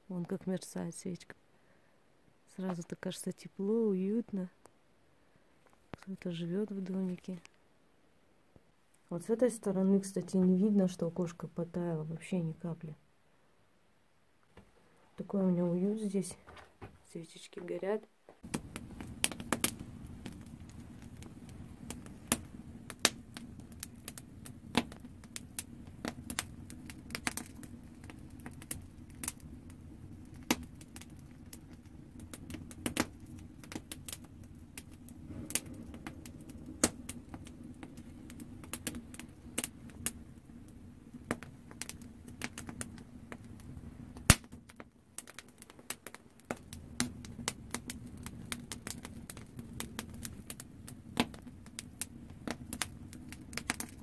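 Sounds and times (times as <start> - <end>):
campfire crackling and popping: 18.4 - 54.0.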